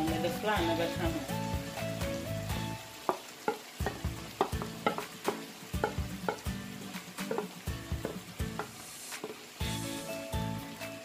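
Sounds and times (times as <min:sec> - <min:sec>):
food sizzling in a frying pan: 0:00.0 - 0:11.0
wooden spatula knocking a pan: 0:03.0 - 0:09.5.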